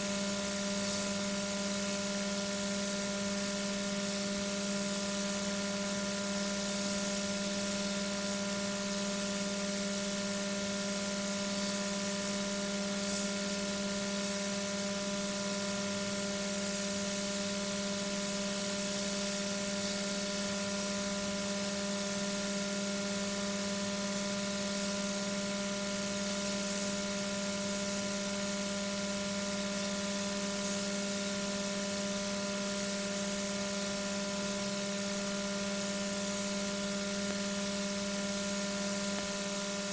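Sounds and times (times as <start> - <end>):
electrical hum: 17.4 - 39.9.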